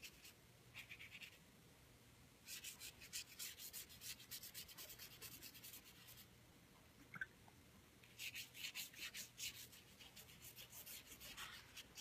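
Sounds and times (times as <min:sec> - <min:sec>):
paintbrush scrubbing paper: 0:00.0 - 0:01.4, 0:02.4 - 0:06.3, 0:08.1 - 0:12.0.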